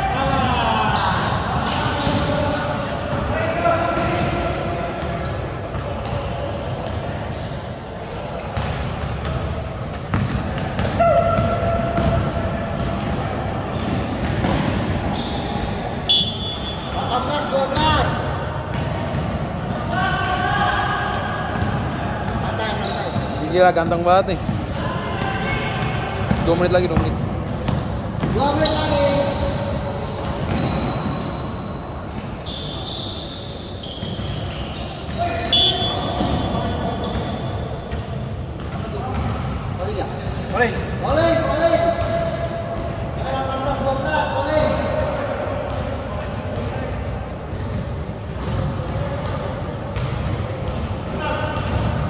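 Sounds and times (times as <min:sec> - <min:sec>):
sneakers squeaking on floor: 0:00.1 - 0:03.2, 0:05.0 - 0:44.9
basketball bouncing on court: 0:05.0 - 0:07.2, 0:08.4 - 0:20.0, 0:21.4 - 0:32.7, 0:33.8 - 0:43.1, 0:45.7 - 0:52.0
sharp high squeal: 0:32.4 - 0:37.5.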